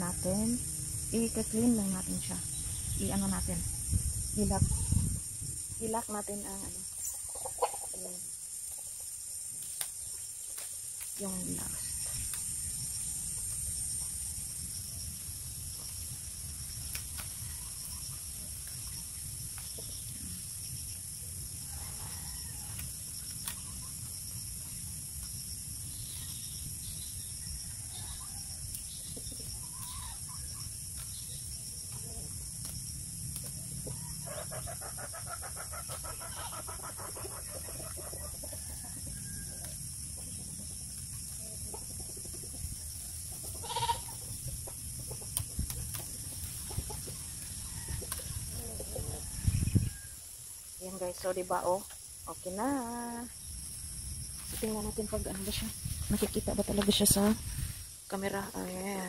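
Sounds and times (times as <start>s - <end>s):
chickens clucking: 6.9s - 9.2s, 33.8s - 49.9s
bamboo strips clicking: 9.6s - 11.2s, 16.8s - 17.4s.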